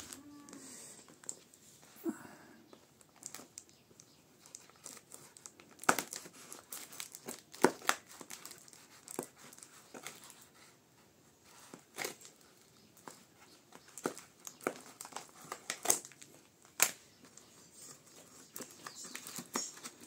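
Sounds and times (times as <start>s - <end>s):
tape crinkling: 2.7s - 10.6s, 11.5s - 20.0s.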